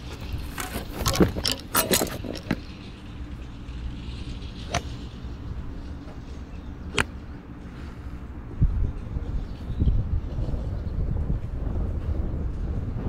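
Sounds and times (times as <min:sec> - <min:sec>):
steady low rumble: 0:00.0 - 0:13.0
golf club hitting ball: 0:04.7 - 0:04.9.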